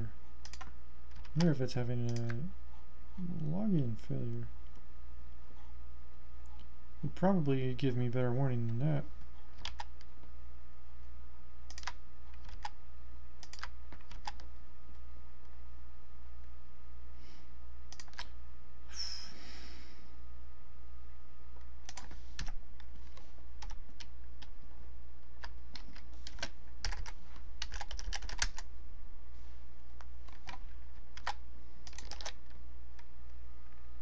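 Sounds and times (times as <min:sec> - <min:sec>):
steady low hum: 0:00.0 - 0:34.0
typing on computer keyboard: 0:09.6 - 0:10.0, 0:11.7 - 0:12.8, 0:13.4 - 0:14.5, 0:25.4 - 0:28.7, 0:31.2 - 0:32.4.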